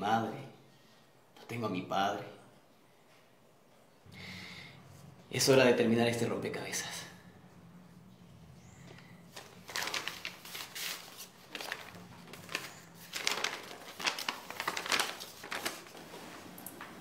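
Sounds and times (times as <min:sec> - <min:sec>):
paper rustling and crinkling: 0:09.0 - 0:17.0.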